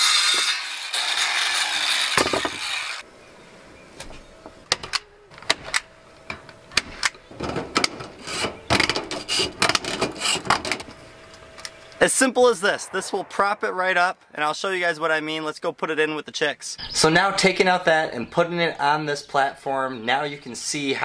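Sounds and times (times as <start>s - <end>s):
power tool running against wood: 0.0s - 3.0s.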